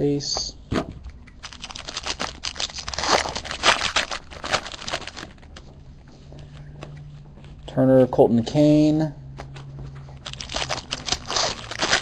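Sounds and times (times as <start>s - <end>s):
foil wrapper crinkling and tearing: 1.4s - 5.5s, 10.2s - 12.0s.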